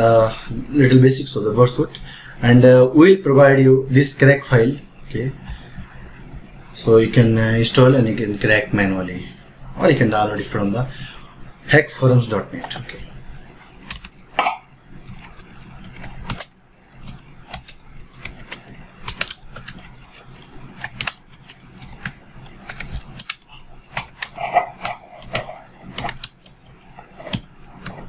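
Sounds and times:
computer keyboard typing: 0:13.8 - 0:14.4, 0:15.0 - 0:28.0.

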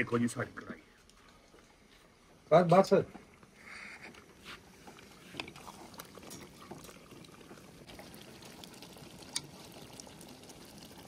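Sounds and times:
gravy bubbling in a pot: 0:03.1 - 0:11.0.

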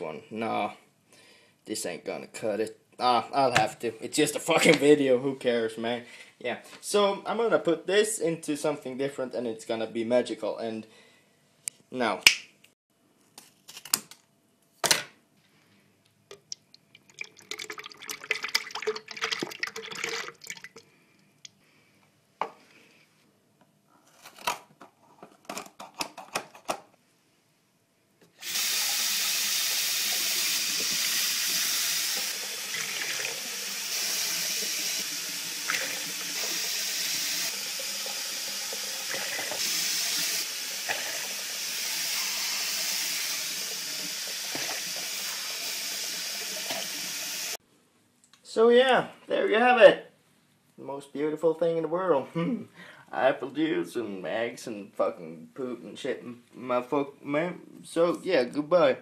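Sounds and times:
tap water running into sink: 0:16.3 - 0:20.8, 0:28.4 - 0:47.6.

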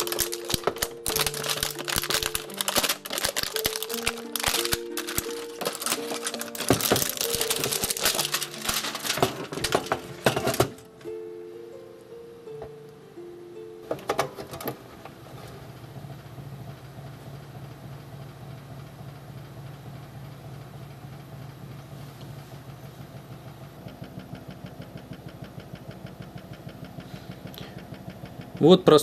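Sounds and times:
clicks of handling: 0:00.0 - 0:11.0
cooling fan humming and rattling: 0:00.0 - 0:29.0.

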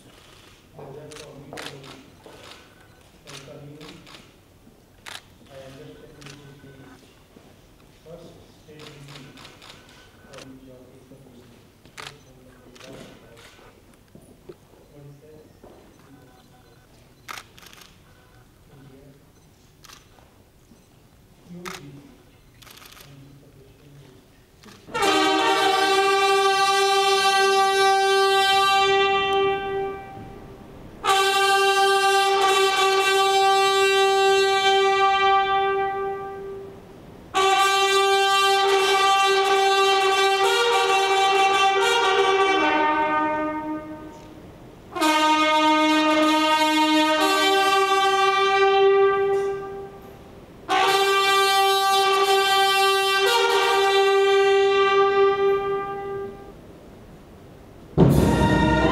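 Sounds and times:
brass fanfare chords: 0:24.9 - 0:56.6, 0:58.0 - 0:58.9.

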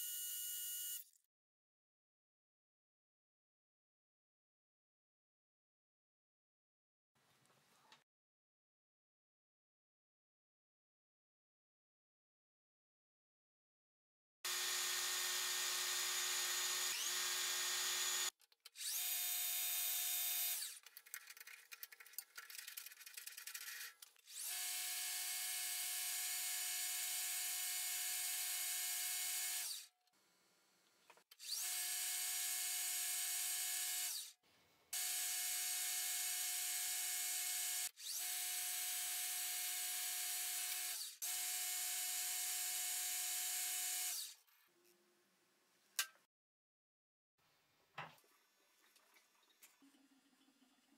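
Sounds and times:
irregular scratching: 0:20.8 - 0:24.2.

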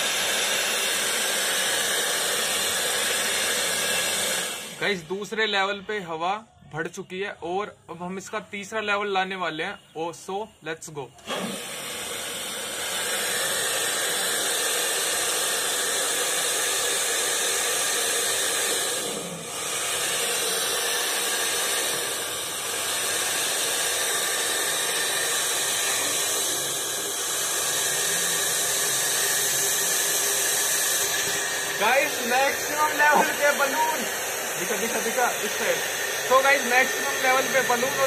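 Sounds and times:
hair dryer blowing air: 0:00.0 - 0:05.2, 0:11.2 - 0:38.0.

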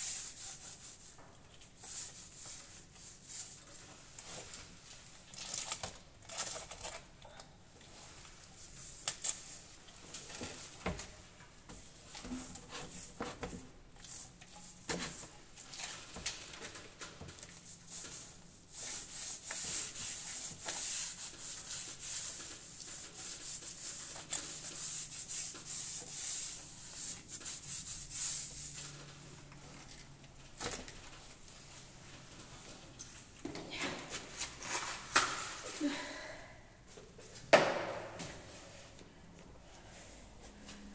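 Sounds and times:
paintbrush rubbing on wall: 0:00.0 - 0:03.8, 0:17.6 - 0:29.0.

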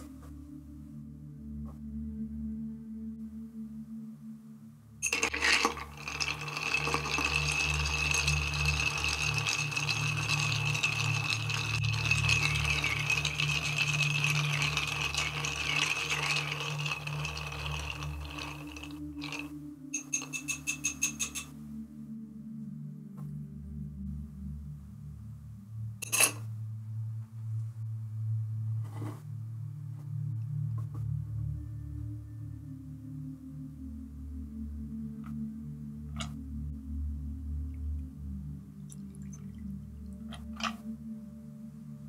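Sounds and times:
ice clinking in a mixing glass: 0:05.0 - 0:21.5, 0:26.0 - 0:26.4, 0:40.6 - 0:40.8.

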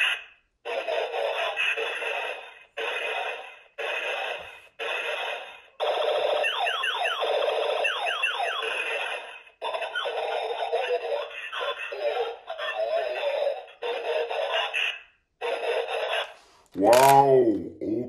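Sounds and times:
toy pistol sound effects: 0:00.0 - 0:12.0.

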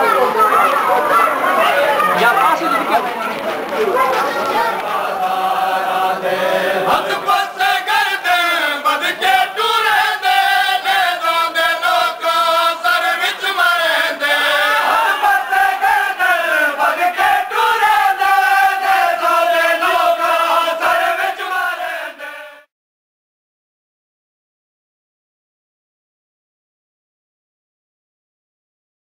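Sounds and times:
men chanting together: 0:04.5 - 0:22.7.

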